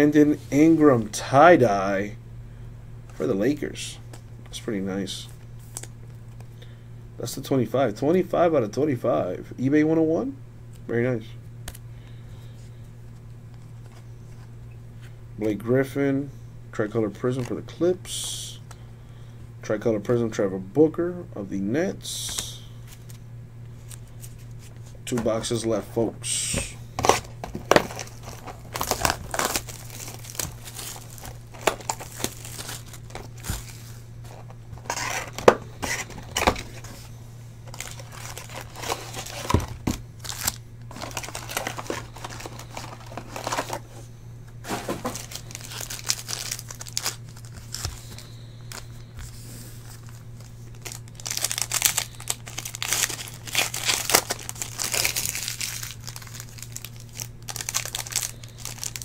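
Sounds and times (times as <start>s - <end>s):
plastic wrapping crinkling and tearing: 26.6s - 37.0s, 37.6s - 43.8s, 44.7s - 49.0s, 49.8s - 59.0s.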